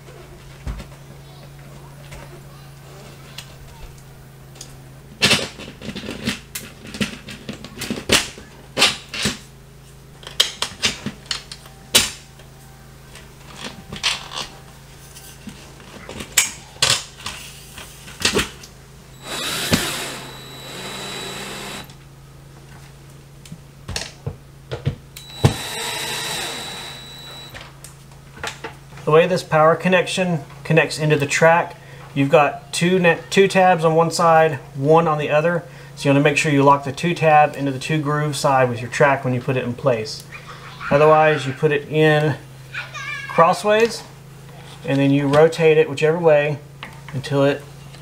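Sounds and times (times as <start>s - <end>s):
cordless drill whining: 19.2s - 22.0s, 25.2s - 27.6s.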